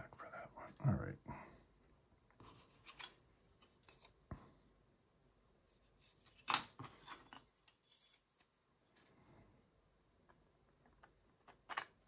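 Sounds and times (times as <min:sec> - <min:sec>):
hand tools and plastic parts clicking: 0:06.0 - 0:08.3, 0:10.3 - 0:12.0.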